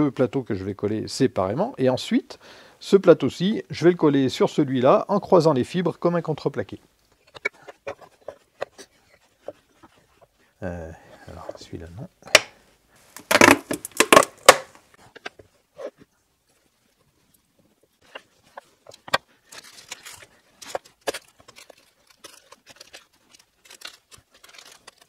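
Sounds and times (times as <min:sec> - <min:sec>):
parchment paper rustling: 0:07.1 - 0:10.4, 0:17.9 - 0:25.0.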